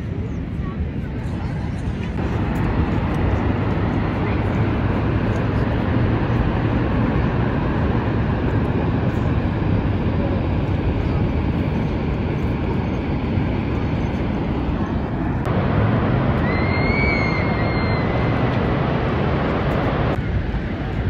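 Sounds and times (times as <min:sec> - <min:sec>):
waterfall roaring: 0:12.1 - 0:20.5.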